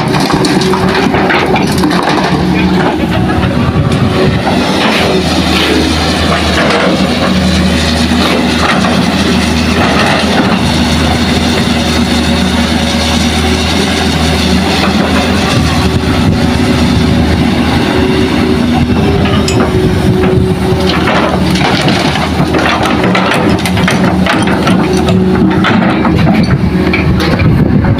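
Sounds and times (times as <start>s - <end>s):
rock and soil clattering: 0.0s - 3.5s, 20.8s - 26.6s
excavator diesel engine running: 0.0s - 27.9s.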